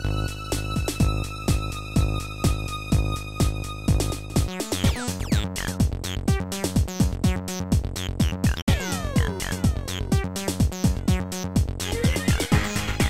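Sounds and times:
electronic tracker music: 0:00.0 - 0:13.0.

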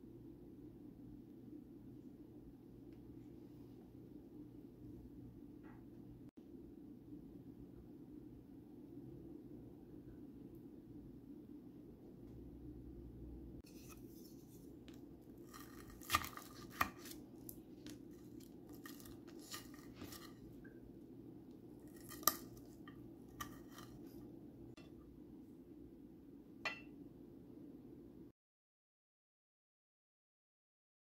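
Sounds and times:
fork scraping a plate: 0:15.4 - 0:17.2, 0:18.1 - 0:20.5, 0:21.8 - 0:24.2.

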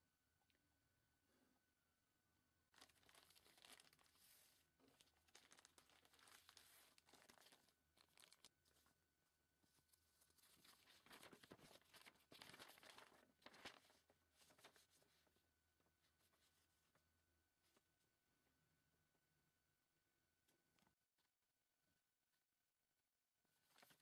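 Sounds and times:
plastic bag and paper crinkling: 0:02.7 - 0:08.9, 0:09.8 - 0:15.2, 0:23.6 - 0:24.0.

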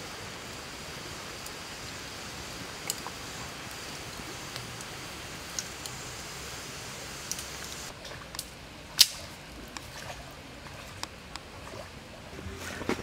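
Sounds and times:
fire crackling: 0:00.0 - 0:09.2
steady hiss: 0:00.0 - 0:09.5
fire pops and snaps: 0:02.8 - 0:03.2, 0:05.5 - 0:05.9, 0:07.2 - 0:09.2.

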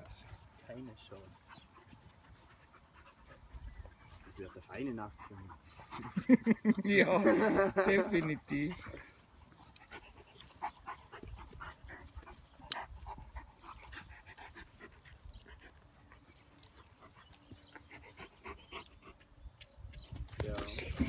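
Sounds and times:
dogs scuffling on grass: 0:00.0 - 0:06.1
dogs panting: 0:00.0 - 0:21.0.

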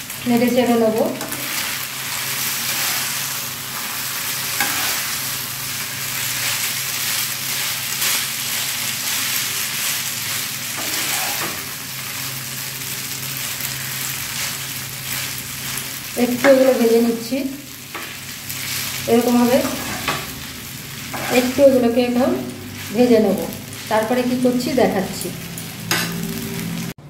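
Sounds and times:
noodles sizzling in a frying pan: 0:00.0 - 0:27.0
wooden spatula stirring in a pan: 0:02.2 - 0:11.7, 0:17.9 - 0:24.3.

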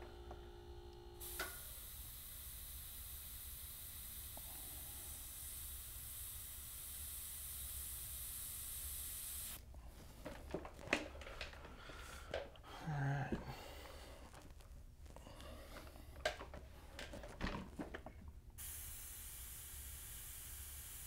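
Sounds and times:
airbrush spraying hiss: 0:01.2 - 0:09.6, 0:18.6 - 0:21.0.

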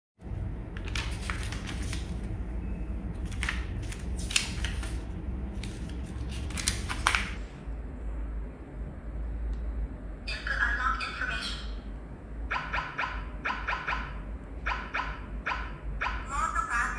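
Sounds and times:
steady low hum: 0:00.2 - 0:16.9
paper pages rustling: 0:00.8 - 0:02.3, 0:03.2 - 0:07.5.

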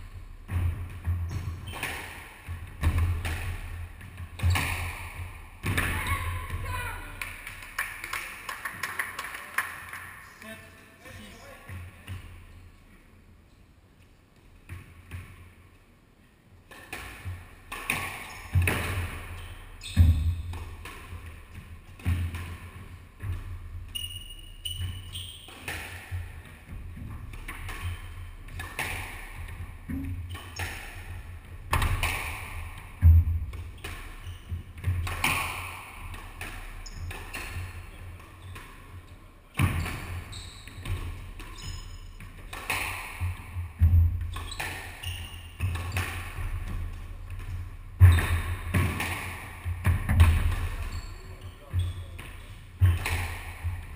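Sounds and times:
rackets striking squash ball: 0:00.2 - 0:08.1, 0:16.7 - 0:53.9
ball smacking walls and floor: 0:00.4 - 0:06.7, 0:16.7 - 0:51.0, 0:51.7 - 0:53.9.

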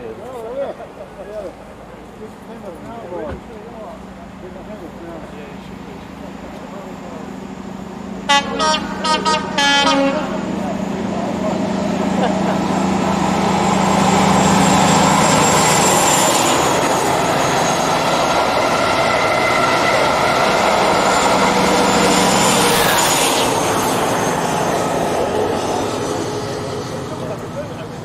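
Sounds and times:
diesel train passing: 0:00.0 - 0:28.0.

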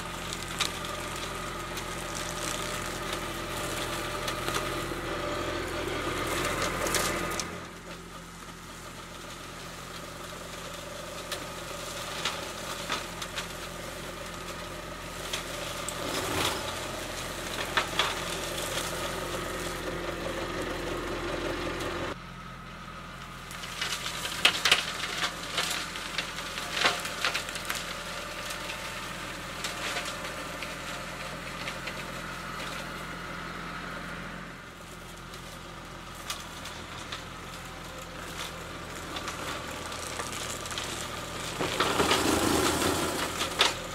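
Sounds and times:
branches cracking and snapping: 0:00.0 - 0:05.0, 0:23.5 - 0:32.9, 0:35.0 - 0:43.9
flail mower shredding brush: 0:00.0 - 0:43.9
tractor diesel engine running: 0:00.0 - 0:43.9.

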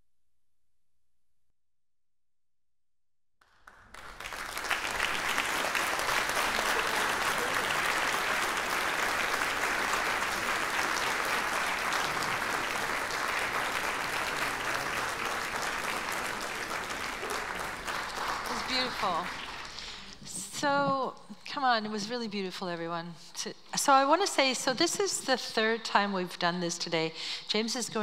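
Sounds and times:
audience applauding: 0:03.4 - 0:20.8.

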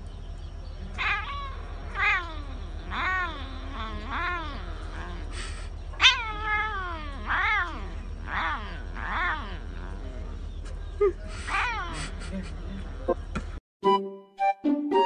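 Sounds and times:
cat meowing: 0:01.0 - 0:10.2.

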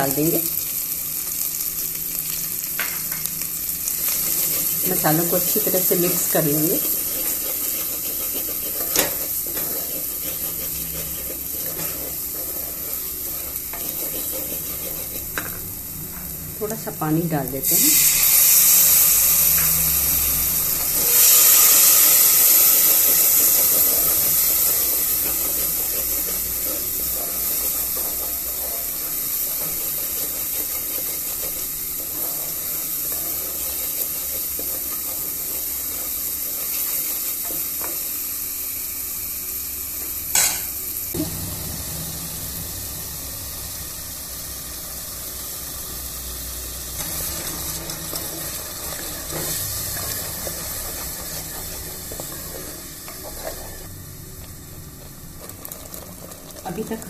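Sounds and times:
masala sizzling and hissing: 0:00.0 - 0:57.0
spatula stirring: 0:03.9 - 0:16.9, 0:20.3 - 0:38.3, 0:46.9 - 0:53.9, 0:55.0 - 0:57.0.

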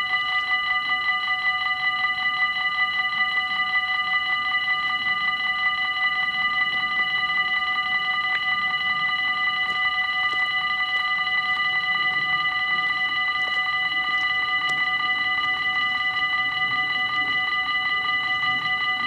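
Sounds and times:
level-crossing warning bells ringing: 0:00.0 - 0:19.0.

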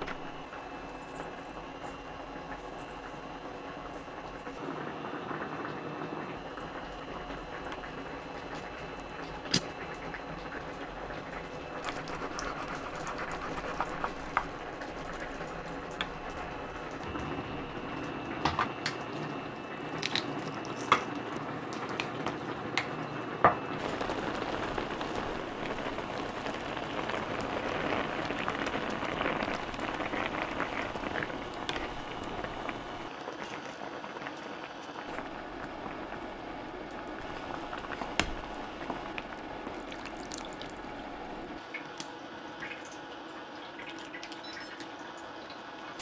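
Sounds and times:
water boiling in a pan: 0:00.0 - 0:46.0.

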